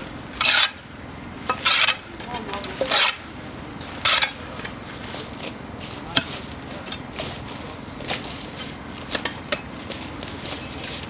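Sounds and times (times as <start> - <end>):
shovel scraping ground: 0.3 - 0.8, 1.5 - 11.0
shovel blade striking ground: 0.4 - 0.8, 1.5 - 3.3, 4.0 - 4.4, 6.1 - 6.5.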